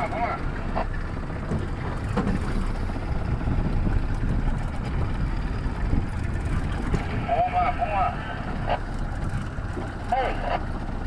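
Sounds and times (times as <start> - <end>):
outboard motor running: 0.0 - 11.0
water against hull: 0.0 - 11.0
wind on microphone: 2.0 - 9.9.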